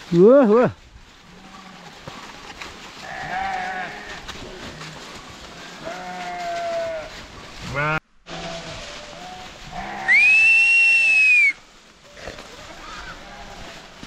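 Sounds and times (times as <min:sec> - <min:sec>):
sheep and goats bleating: 0:01.1 - 0:11.3, 0:12.0 - 0:14.0
loud high whistle: 0:10.1 - 0:11.6.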